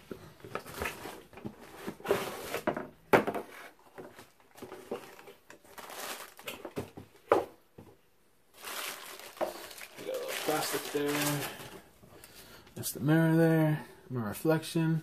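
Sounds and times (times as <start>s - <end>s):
cardboard scraping and rustling: 0.4s - 7.0s
plastic crinkling: 4.2s - 6.9s, 8.5s - 11.8s.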